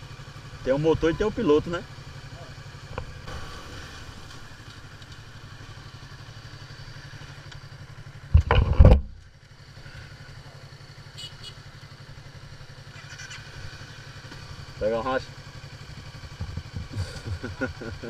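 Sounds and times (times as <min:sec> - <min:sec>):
motorcycle engine rumbling: 0:00.0 - 0:18.0
loud engine burst: 0:03.2 - 0:04.8.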